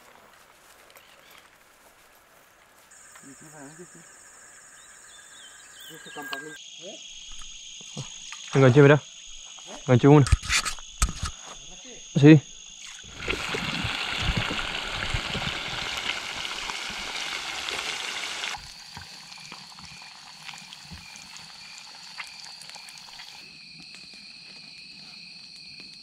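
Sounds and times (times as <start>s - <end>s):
frog pulsed call: 2.9s - 6.6s
rushing water: 12.8s - 23.1s.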